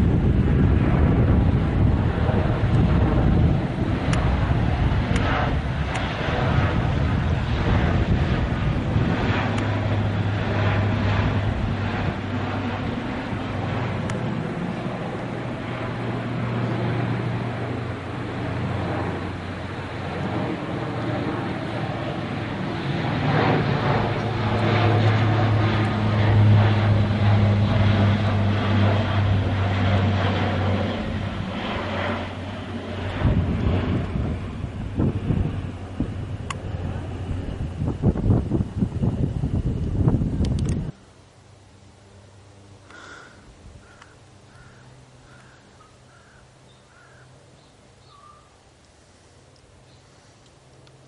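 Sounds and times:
aircraft engine rush: 0.0 - 51.0
propeller aircraft drone: 0.0 - 51.0
bird calling: 42.9 - 48.6.

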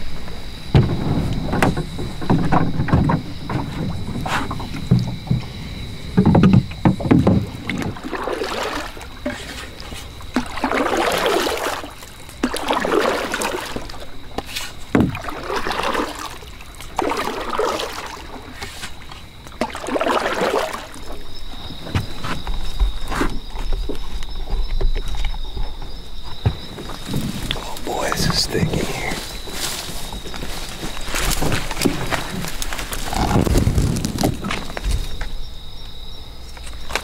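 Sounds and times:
knocks against canoe: 0.7 - 8.4, 13.8 - 16.1, 24.7 - 27.6.

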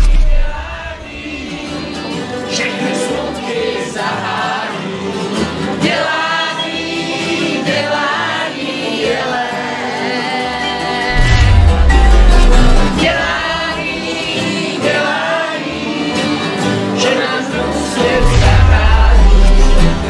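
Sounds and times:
deep boom falling in pitch: 0.0 - 1.5, 11.1 - 14.2, 18.2 - 20.0
group of voices singing: 0.0 - 20.0
strummed acoustic guitars: 0.0 - 20.0.

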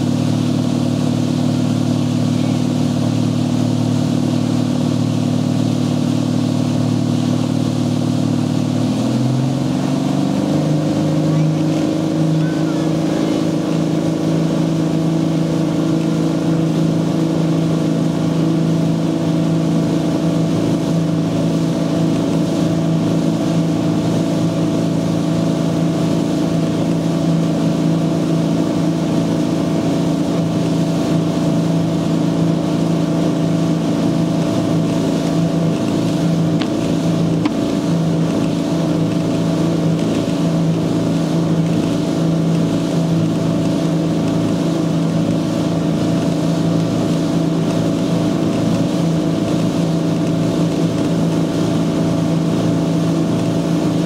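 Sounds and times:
boat engine running: 0.0 - 54.0
wind and water rushing: 0.0 - 54.0.

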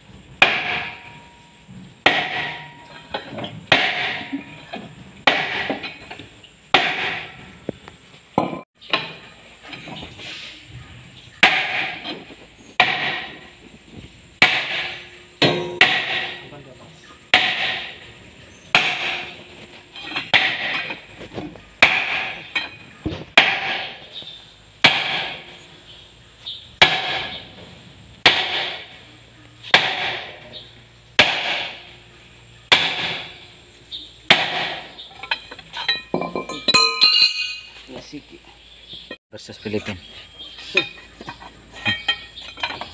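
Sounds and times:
sledgehammer striking metal: 0.4 - 7.4, 11.4 - 13.6, 14.4 - 16.7, 17.3 - 24.2, 24.8 - 25.6, 26.8 - 27.6, 28.2 - 29.0, 29.6 - 30.6, 31.2 - 32.0, 32.7 - 33.6, 34.3 - 37.7.

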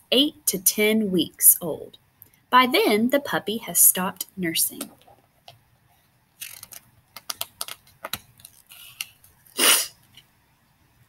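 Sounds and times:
book pages turning: 6.4 - 9.5
short hiss: 8.7 - 10.0.

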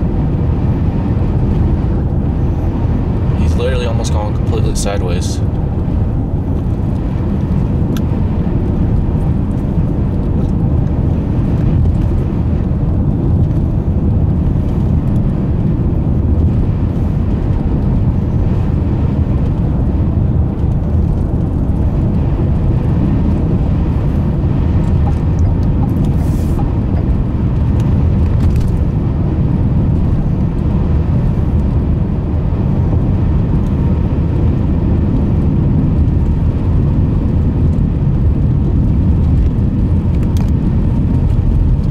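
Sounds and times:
car engine: 0.0 - 41.9
tyre and road noise: 0.0 - 41.9.

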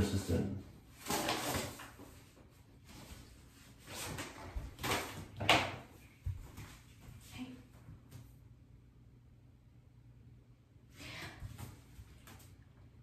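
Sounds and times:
paper rustling: 1.0 - 5.7.

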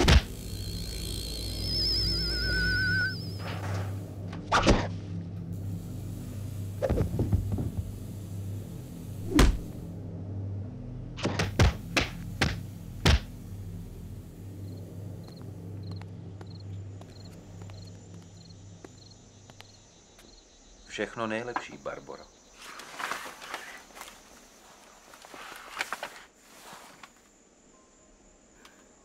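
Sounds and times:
cricket chirping: 0.0 - 4.2, 13.2 - 29.0
low drone: 0.0 - 19.3
sharp thunks: 9.3 - 9.7.

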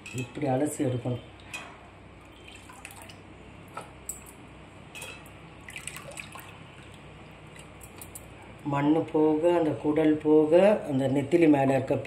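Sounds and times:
water dripping and splashing: 2.2 - 3.2, 5.6 - 8.2.

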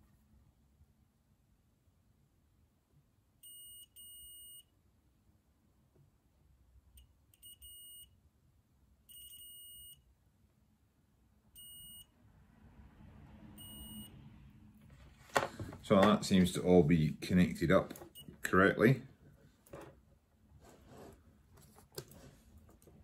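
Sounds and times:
multimeter continuity beeps: 3.4 - 4.7, 7.0 - 8.2, 9.1 - 10.1, 11.5 - 12.1, 13.6 - 14.2, 18.1 - 18.5.

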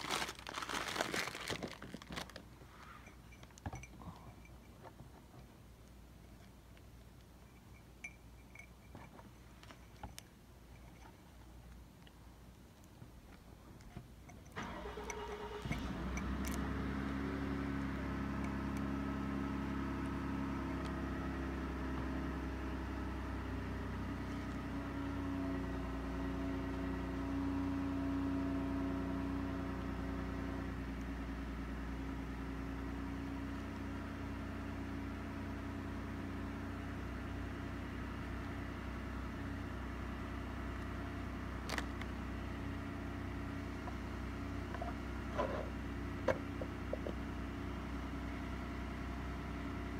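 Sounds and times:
car engine starting and idling: 14.5 - 49.9.

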